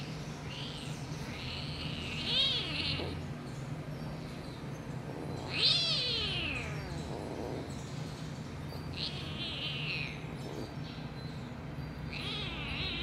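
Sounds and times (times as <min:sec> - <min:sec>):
kitten meowing: 0:01.4 - 0:03.2, 0:05.4 - 0:07.6, 0:09.0 - 0:10.2, 0:12.1 - 0:13.0.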